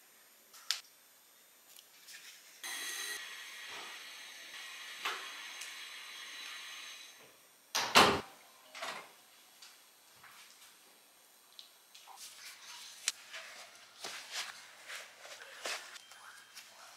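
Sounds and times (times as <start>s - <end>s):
door shutting with a thud: 7.8s - 8.3s.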